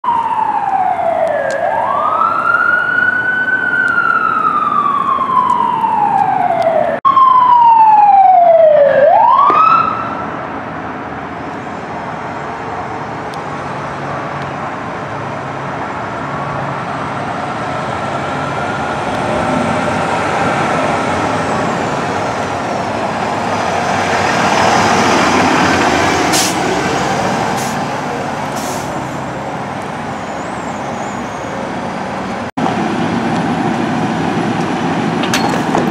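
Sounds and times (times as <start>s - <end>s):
fire engine siren wailing: 0.0s - 35.3s
road traffic: 0.0s - 35.9s
vehicle engine: 10.0s - 35.9s.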